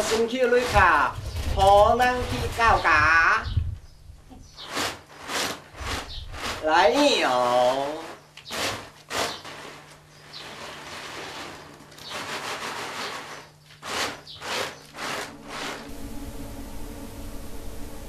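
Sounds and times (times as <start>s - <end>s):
bamboo tray rasping: 0.0s - 2.9s, 4.4s - 15.9s
soft piano music: 15.3s - 18.0s.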